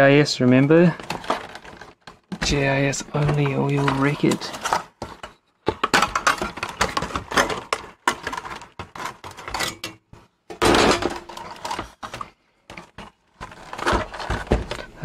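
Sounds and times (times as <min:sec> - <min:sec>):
plastic and metal parts clattering: 0:00.4 - 0:15.0.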